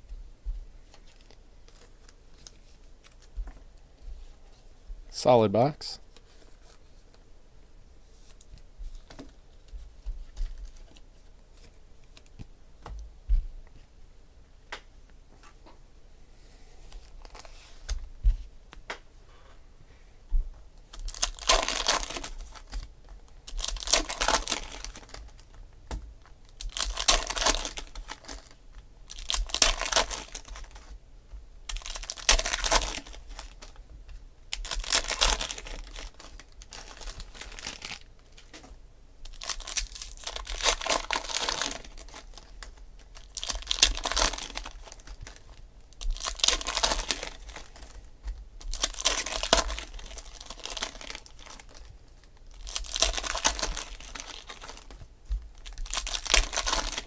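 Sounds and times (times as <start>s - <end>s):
foil packs tearing and crinkling: 20.9s - 25.5s, 26.5s - 30.8s, 31.7s - 33.8s, 34.5s - 38.4s, 39.2s - 48.0s, 48.6s - 55.0s, 55.6s - 57.0s.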